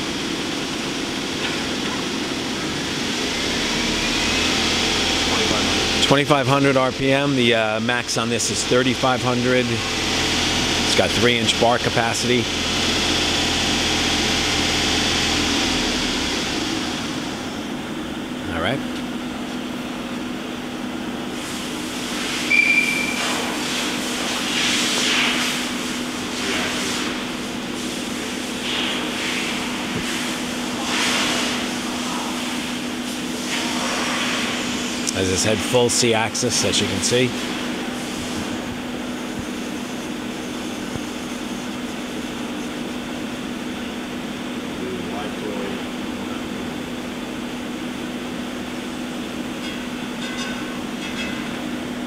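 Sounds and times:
machine hum: 0.0 - 52.0
brief high-pitched tones: 22.5 - 23.2.

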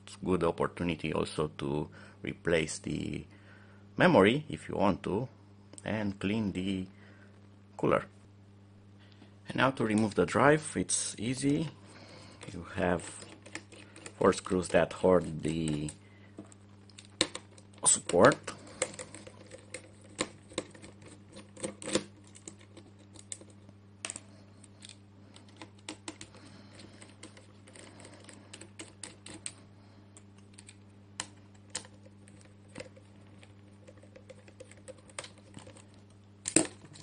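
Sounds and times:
faint low hum: 0.0 - 37.0.

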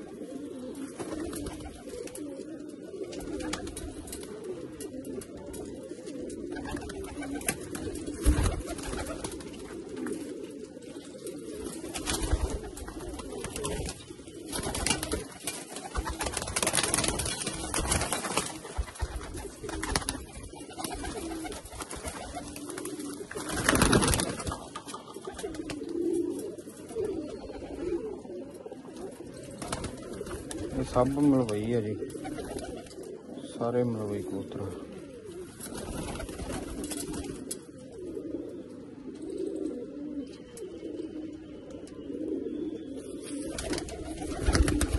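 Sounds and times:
pigeons cooing: 0.0 - 44.9
wings flapping: 1.0 - 2.3, 3.0 - 4.4, 6.4 - 10.4, 11.6 - 26.3, 29.5 - 33.1, 35.6 - 37.6, 43.4 - 44.9.

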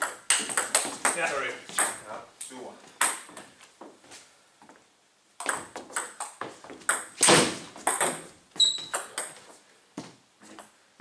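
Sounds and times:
short high squeak: 8.6 - 9.0.

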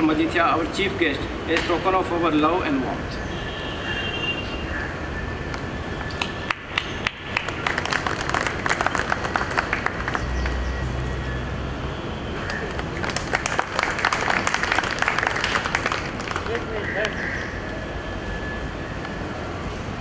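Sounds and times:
audience applauding: 6.5 - 10.6, 12.7 - 17.2.

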